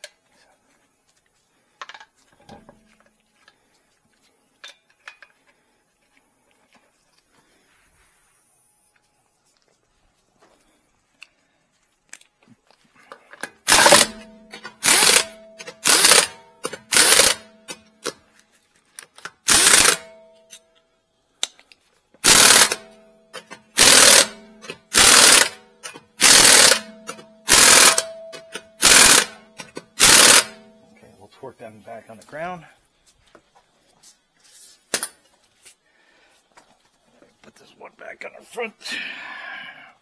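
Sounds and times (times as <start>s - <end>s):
impact wrench bursts: 13.5s - 18.2s, 19.2s - 20.3s, 22.2s - 30.8s.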